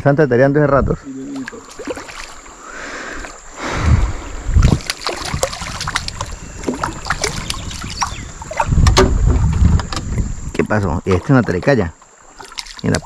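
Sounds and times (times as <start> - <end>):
river water splashing: 1.1 - 13.0
low thumps: 3.8 - 11.6.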